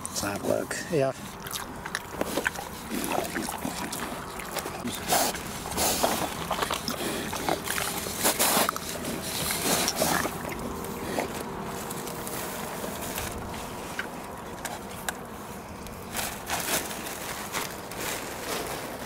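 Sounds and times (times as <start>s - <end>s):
pigs munching and smacking: 0.0s - 19.0s.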